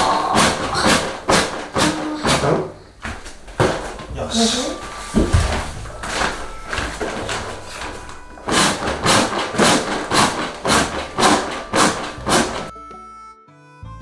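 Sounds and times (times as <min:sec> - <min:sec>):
air mattress foot pump: 0:00.0 - 0:12.7
nylon fabric crinkling: 0:04.8 - 0:08.4.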